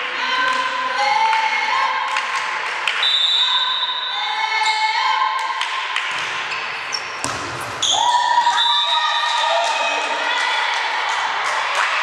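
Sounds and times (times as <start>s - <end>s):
voices in hall: 0.0s - 12.0s
volleyball hits: 5.6s - 8.6s
shoe squeaks: 6.4s - 8.0s.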